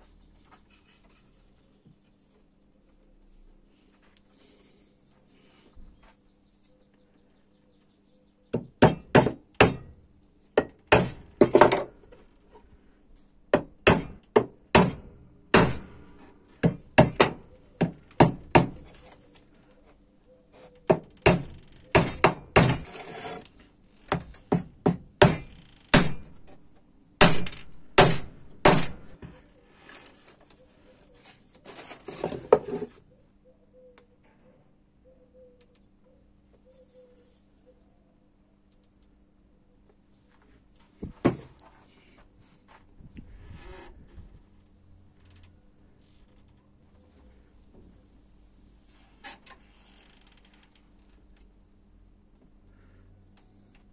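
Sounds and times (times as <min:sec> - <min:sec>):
hammer driving nails into wood: 0:08.6 - 0:09.9, 0:10.6 - 0:11.9, 0:13.6 - 0:16.0, 0:16.6 - 0:19.0, 0:20.9 - 0:23.3, 0:24.1 - 0:26.6, 0:27.2 - 0:29.2.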